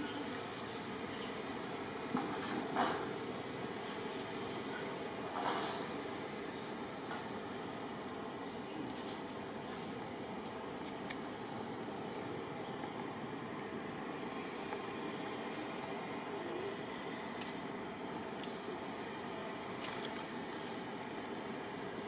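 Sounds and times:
even hiss: 0:02.8 - 0:12.4.

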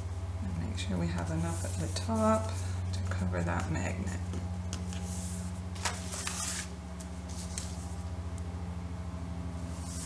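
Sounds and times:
steady low hum: 0:00.0 - 0:10.0
paper rustling and sliding: 0:01.1 - 0:02.7, 0:04.8 - 0:08.0, 0:09.6 - 0:10.0.

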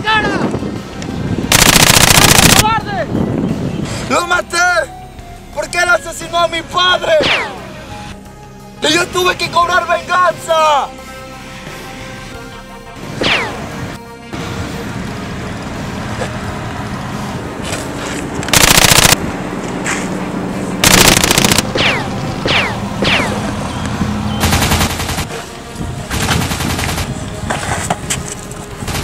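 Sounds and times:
automatic gunfire bursts: 0:01.5 - 0:02.6, 0:18.5 - 0:19.2, 0:20.8 - 0:23.3, 0:24.4 - 0:25.4
background music: 0:02.6 - 0:17.5, 0:21.0 - 0:29.0
bullet ricochet whistles: 0:07.2 - 0:07.6, 0:13.2 - 0:13.6, 0:21.8 - 0:23.4.

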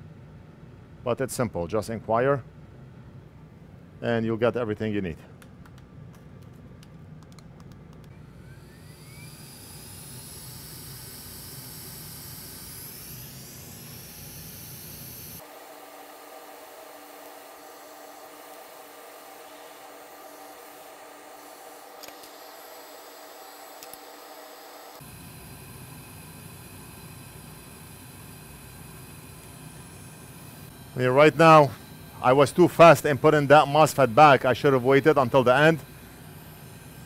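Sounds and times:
hot air station hissing: 0:08.4 - 0:37.0.

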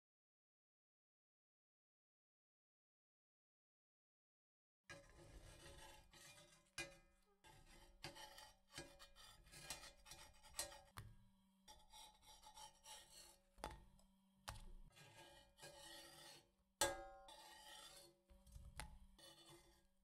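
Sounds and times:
metal spatula scraping pan: 0:04.9 - 0:11.0, 0:11.7 - 0:13.9, 0:14.9 - 0:20.0.

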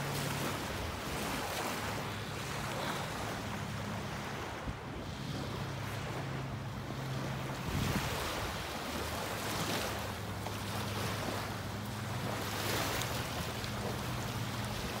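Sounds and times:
small waves lapping on shore: 0:00.0 - 0:15.0
wind on microphone: 0:07.5 - 0:09.1.

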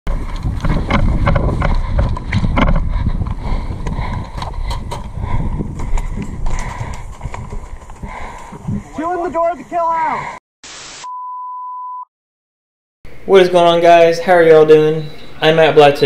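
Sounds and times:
wind buffeting microphone: 0:00.1 - 0:09.7.

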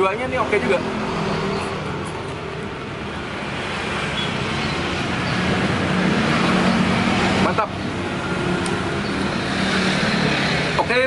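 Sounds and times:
road noise: 0:00.0 - 0:11.0.

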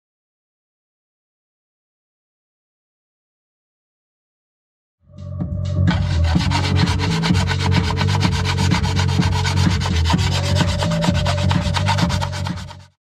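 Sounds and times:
sanding stick rasping on plastic: 0:05.8 - 0:13.0.

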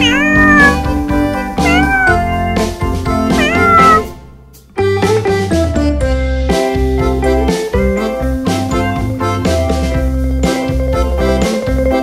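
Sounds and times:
cat meowing: 0:00.0 - 0:01.0, 0:01.6 - 0:02.4, 0:03.3 - 0:04.4
background music: 0:00.0 - 0:12.0.

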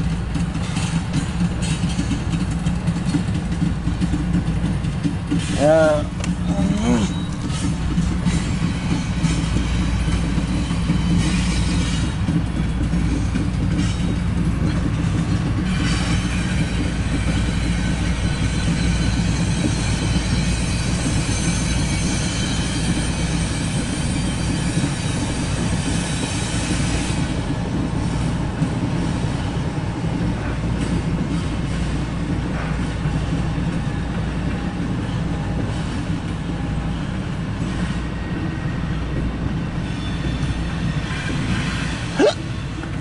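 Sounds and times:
train wheels rumbling on rail: 0:00.0 - 0:43.0
high wheel squeal: 0:06.4 - 0:09.4.

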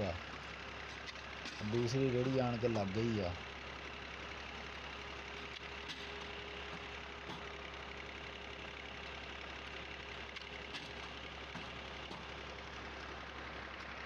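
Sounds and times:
tractor engine running: 0:00.0 - 0:14.0.

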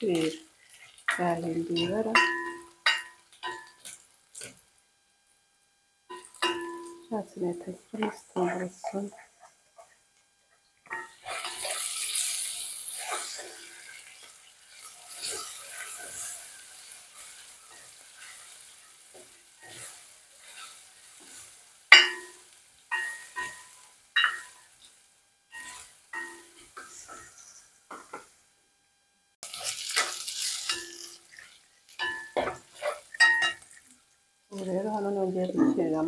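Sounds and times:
garlic sizzling in hot oil: 0:00.0 - 0:05.5, 0:06.1 - 0:28.4, 0:29.4 - 0:36.0
spoon knocking on metal pot: 0:21.9 - 0:23.6.

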